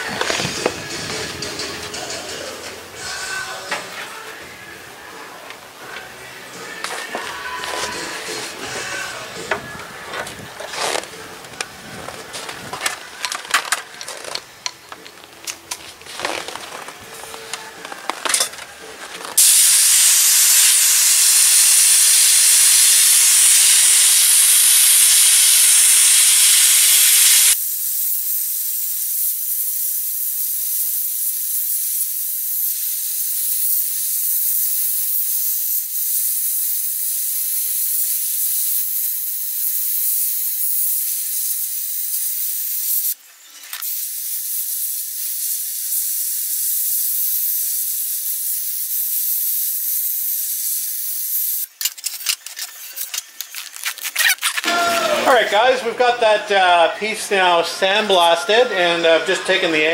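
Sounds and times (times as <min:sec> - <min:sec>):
sandblasting gun hissing: 0:06.5 - 0:11.2, 0:19.4 - 0:55.4.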